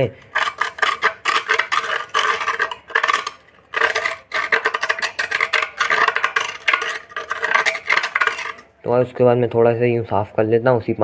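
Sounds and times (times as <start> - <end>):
hand tool rasping terracotta: 0.0 - 8.6.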